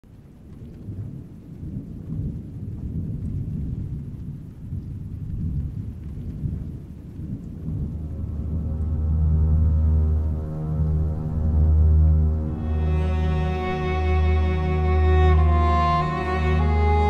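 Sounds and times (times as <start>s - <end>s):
rolling thunder rumble: 0.1s - 13.1s
steady low drone: 7.6s - 17.0s.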